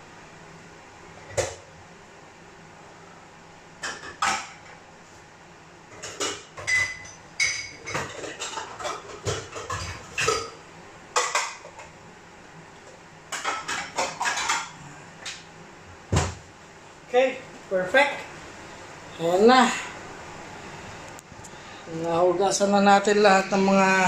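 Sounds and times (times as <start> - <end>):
dishes and utensils clattering: 3.8 - 4.7, 5.9 - 10.6, 11.2 - 11.9, 13.3 - 14.8.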